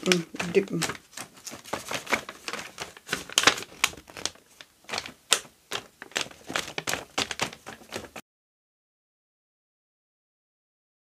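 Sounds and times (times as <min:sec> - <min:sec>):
paper tapping and rustling: 0:00.0 - 0:08.2.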